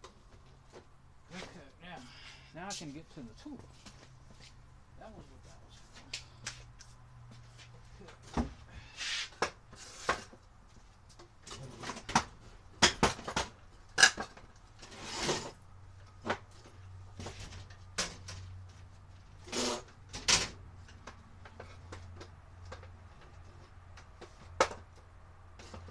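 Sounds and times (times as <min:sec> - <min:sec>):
objects clunking and knocking: 0:07.3 - 0:25.9.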